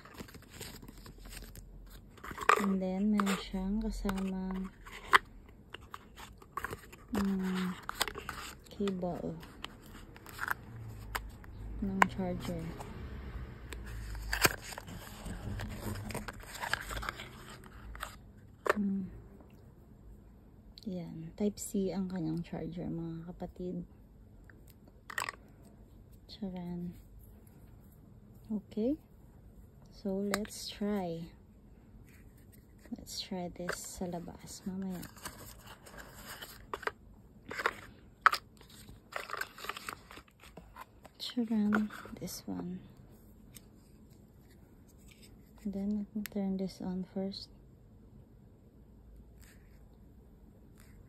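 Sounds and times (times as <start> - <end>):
cardboard scraping and crinkling: 0.0 - 11.4, 13.9 - 18.2, 33.6 - 36.9, 37.5 - 42.3.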